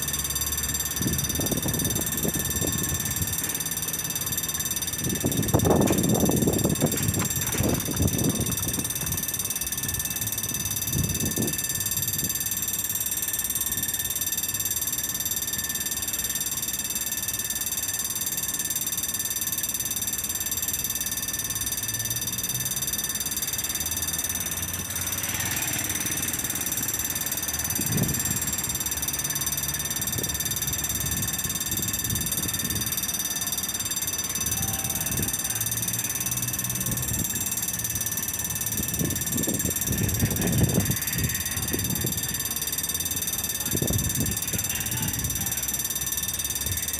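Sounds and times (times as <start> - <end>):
level crossing bell ringing: 0.0 - 46.9.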